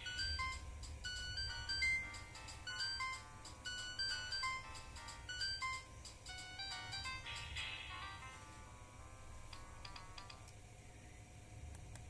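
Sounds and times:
polyphonic phone ringtone: 0:00.0 - 0:08.7.

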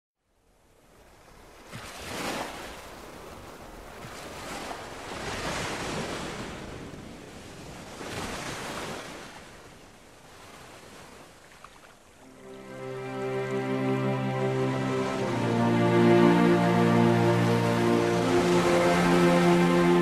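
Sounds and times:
sea surf washing onto beach: 0:12.2 - 0:20.0.

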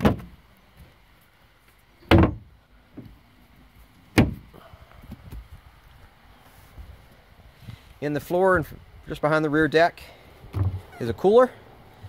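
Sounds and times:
boat hatch lids thudding shut: 0:00.0 - 0:00.4, 0:02.0 - 0:02.5, 0:04.1 - 0:04.5.

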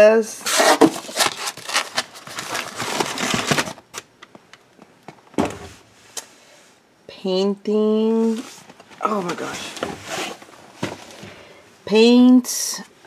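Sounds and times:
items rustling in cardboard box: 0:00.4 - 0:04.0, 0:08.2 - 0:11.4.

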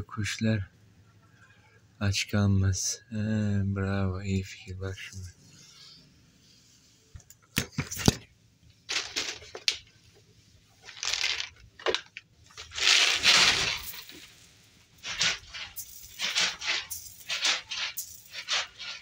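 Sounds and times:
close rustling and crunching: 0:08.9 - 0:10.0, 0:10.7 - 0:19.0.

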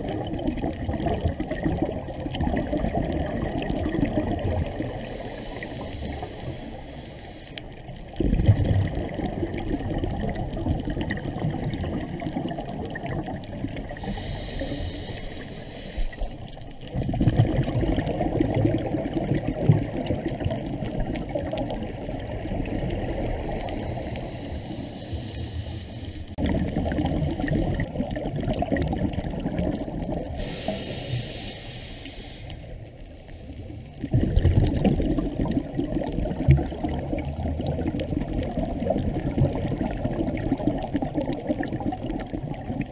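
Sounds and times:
exhaled bubbles rumbling underwater: 0:00.0 - 0:42.9
regulator inhalation hiss: 0:05.0 - 0:07.8, 0:14.0 - 0:16.4, 0:23.5 - 0:27.8, 0:30.4 - 0:32.8.

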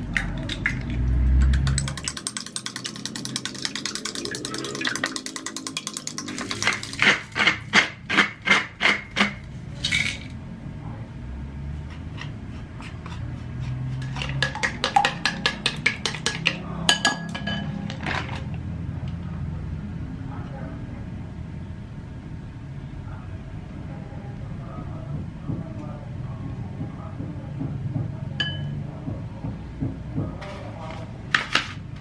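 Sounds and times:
utensils and dishes clinking: 0:08.8 - 0:10.4, 0:13.9 - 0:18.5.

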